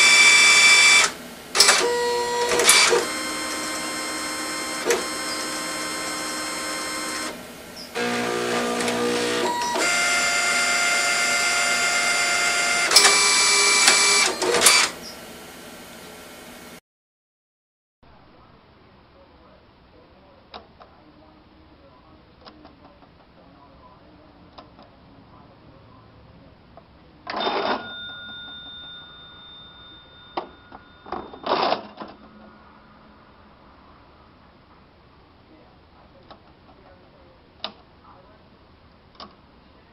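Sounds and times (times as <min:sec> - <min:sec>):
cash register bell ringing: 0:00.0 - 0:07.4, 0:08.0 - 0:15.0, 0:27.4 - 0:32.6
sharp printer clicks: 0:00.0 - 0:10.1, 0:12.8 - 0:15.0
cash register mechanical clatter: 0:00.0 - 0:15.0, 0:27.3 - 0:32.2
printer motors whining: 0:00.0 - 0:16.2.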